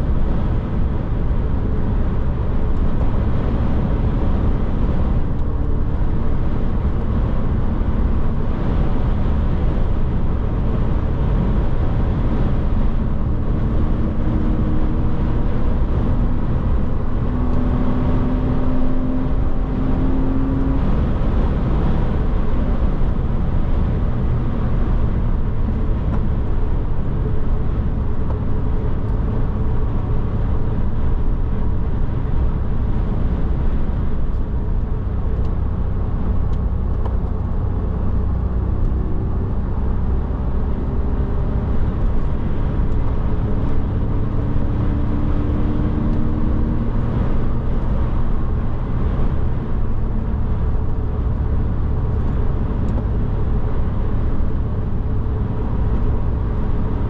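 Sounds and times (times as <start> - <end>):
car engine cruising: 0.0 - 57.0
road and tyre rumble: 0.0 - 57.0.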